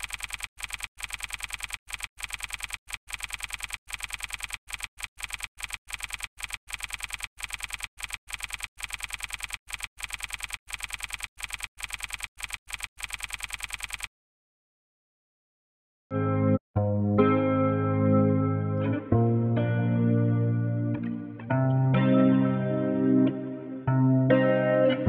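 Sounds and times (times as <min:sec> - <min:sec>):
keyboard typing: 0:00.0 - 0:14.1.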